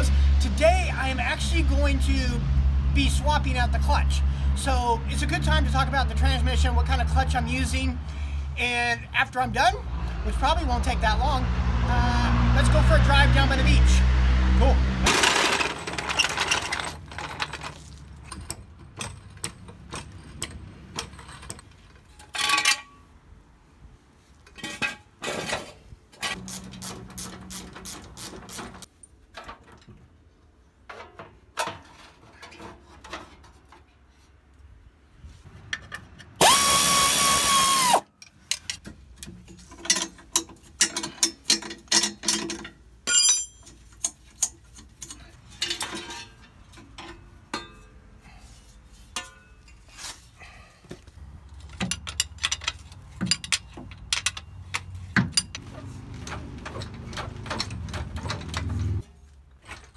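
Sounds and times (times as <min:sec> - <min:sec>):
metal clanks and knocks: 0:15.1 - 0:23.0, 0:30.8 - 0:33.9, 0:38.5 - 0:48.0, 0:49.1 - 0:49.9, 0:51.6 - 0:59.9
power tool whining: 0:36.4 - 0:38.0.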